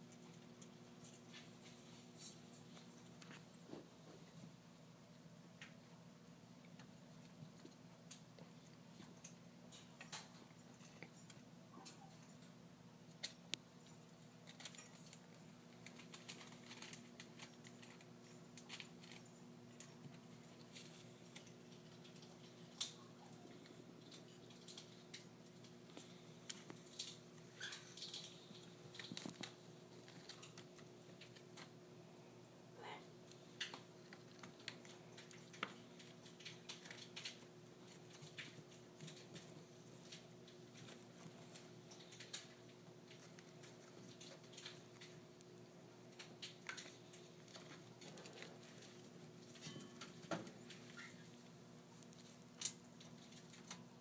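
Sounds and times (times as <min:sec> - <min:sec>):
faint steady hum: 0:00.0 - 0:54.0.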